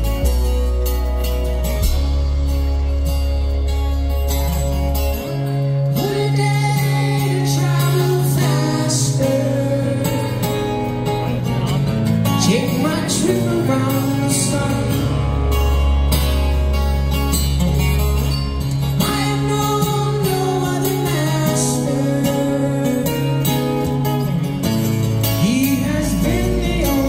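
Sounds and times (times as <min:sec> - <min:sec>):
deep sustained bass note: 0:00.0 - 0:07.3
acoustic guitar: 0:00.0 - 0:27.0
man singing high voice: 0:06.0 - 0:10.8, 0:12.4 - 0:15.4, 0:19.0 - 0:23.8, 0:25.4 - 0:27.0.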